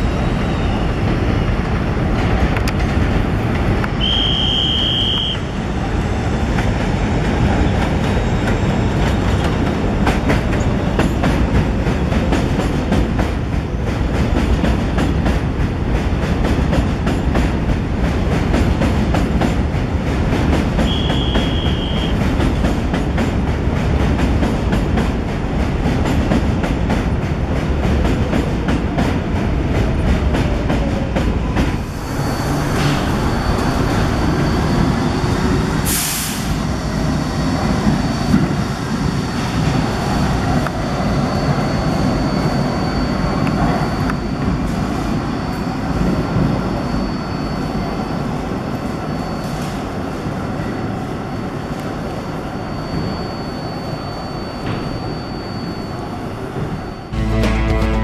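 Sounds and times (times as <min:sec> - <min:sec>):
train rumbling in tunnel: 0:00.0 - 0:58.0
brief hiss: 0:35.9 - 0:36.6
steady high tone: 0:57.1 - 0:58.0.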